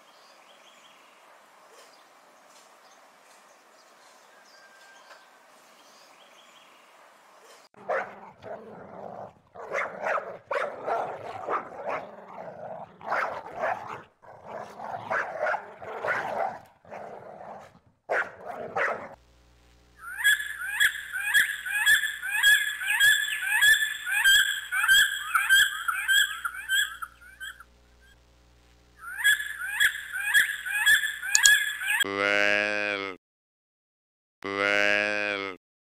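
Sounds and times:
puppy crying and barking: 7.8 - 8.6, 9.6 - 12.4, 20.2 - 27.6
eagle piping calls: 20.0 - 27.6, 29.0 - 32.1.

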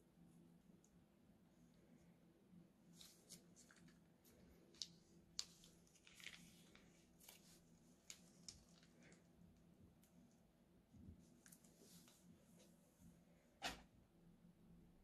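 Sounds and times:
plastic piping bag crinkling: 2.9 - 10.1.

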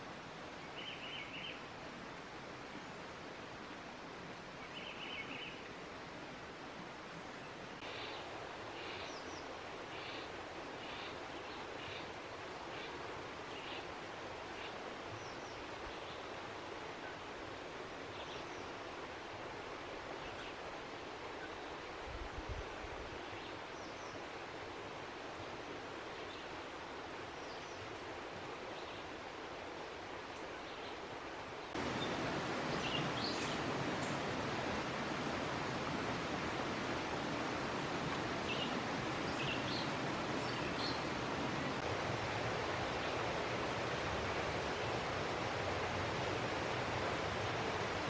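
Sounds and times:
outdoor background hiss: 0.0 - 48.0
outdoor rushing hiss: 31.7 - 48.0.

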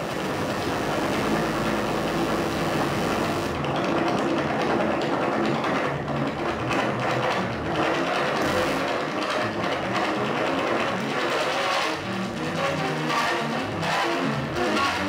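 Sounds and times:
synthesizer electronic music: 0.0 - 3.6.

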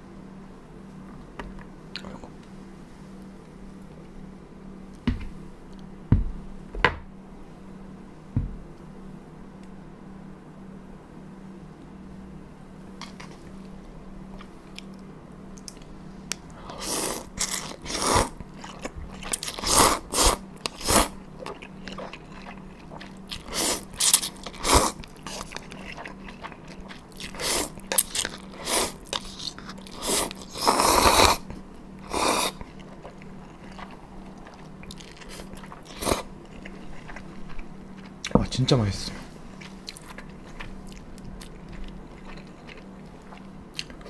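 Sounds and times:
chewing: 13.0 - 38.3, 39.5 - 44.0
noodle slurping: 16.7 - 37.3.

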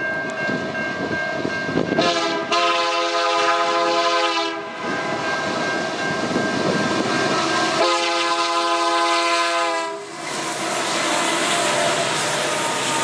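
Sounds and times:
train rumbling past: 0.0 - 13.0
locomotive air horn blasts: 2.0 - 4.9, 7.7 - 10.1.

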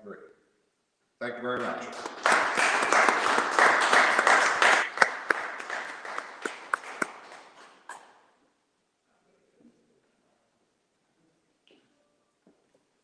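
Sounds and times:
audience applauding: 1.6 - 8.0.

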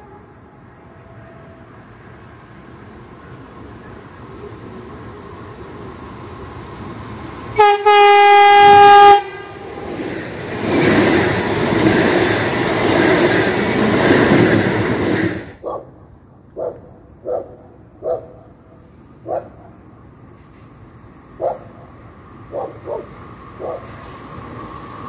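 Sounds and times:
train horn: 0.0 - 1.7, 7.6 - 9.8
train passing at speed: 0.0 - 25.0
dog barking: 15.6 - 16.0, 16.6 - 18.5, 19.2 - 19.8, 21.4 - 21.8, 22.5 - 24.0.

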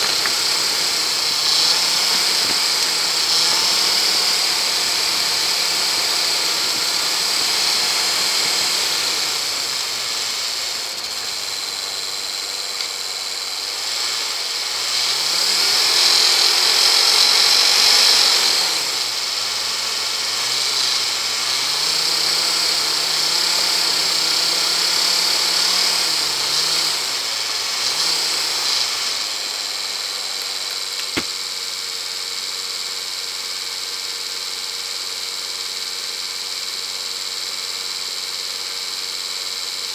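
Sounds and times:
car engine revving and idling: 0.0 - 39.9
sharp click: 30.4 - 31.4.

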